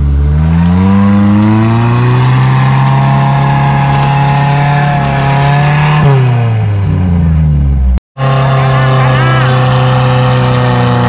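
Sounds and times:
engine droning at high revs: 0:00.0 - 0:11.0.

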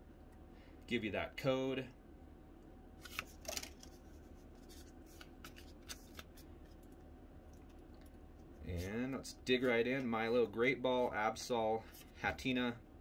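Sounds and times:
cards rustling and clicking: 0:03.0 - 0:07.0.

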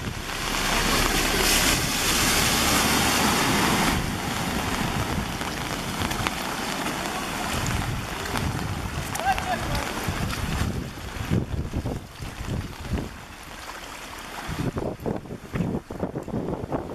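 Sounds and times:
truck engine running: 0:00.0 - 0:06.1
water rushing and splashing: 0:00.0 - 0:16.9.

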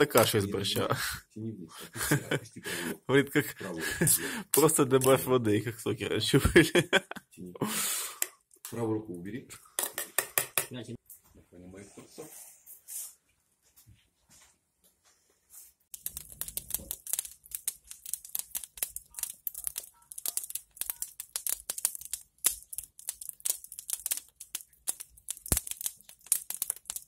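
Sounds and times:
wood fire crackling and popping: 0:03.8 - 0:05.4, 0:15.9 - 0:27.0.

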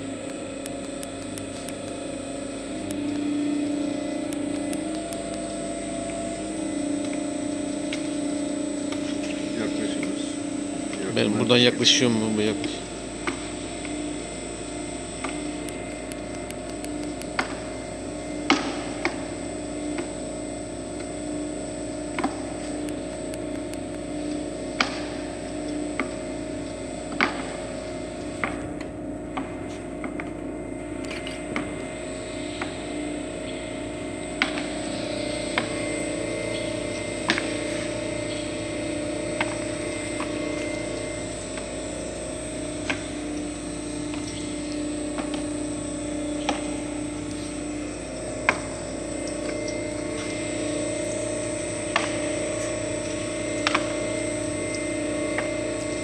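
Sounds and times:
oil press motor hum: 0:00.0 - 0:56.0
sharp clicks: 0:00.2 - 0:02.0.

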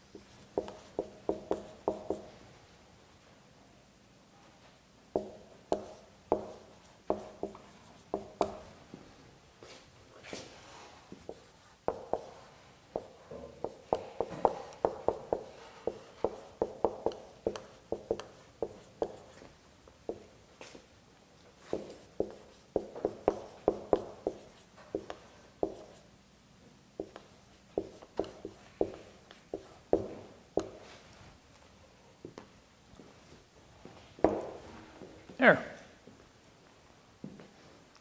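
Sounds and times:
marker pen writing on whiteboard: 0:00.0 - 0:02.4, 0:05.1 - 0:08.8, 0:09.6 - 0:20.9, 0:21.5 - 0:26.1, 0:27.0 - 0:31.0, 0:34.2 - 0:34.6.

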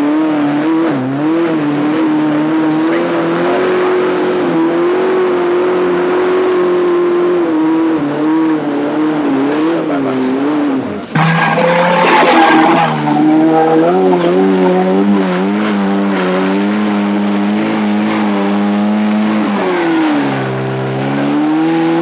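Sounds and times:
car engine at high revs: 0:00.0 - 0:22.0.

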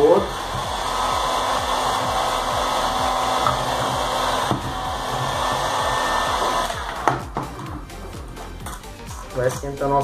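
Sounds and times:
heat gun blowing: 0:00.0 - 0:07.4.

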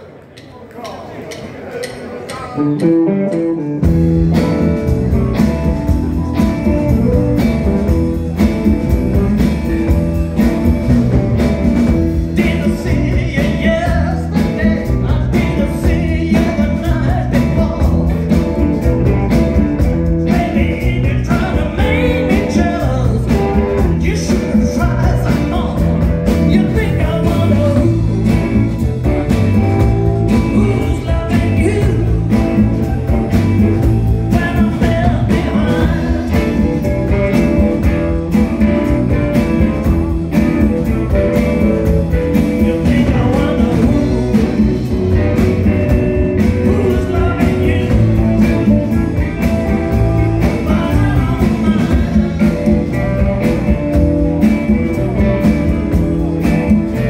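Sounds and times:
live rock band playing: 0:01.8 - 0:57.0
person singing: 0:12.0 - 0:57.0.

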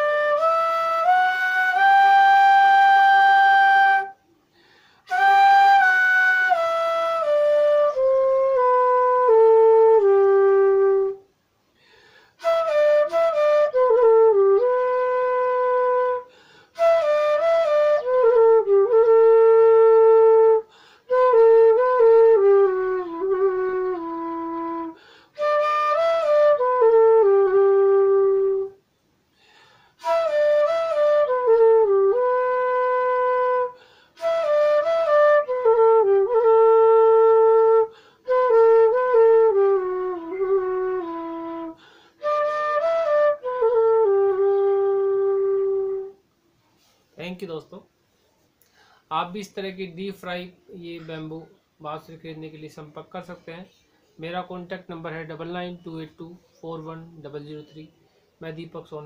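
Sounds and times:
bamboo flute melody: 0:00.0 - 0:04.3, 0:05.1 - 0:11.3, 0:12.4 - 0:28.8, 0:30.0 - 0:46.2, 0:54.1 - 0:58.0.

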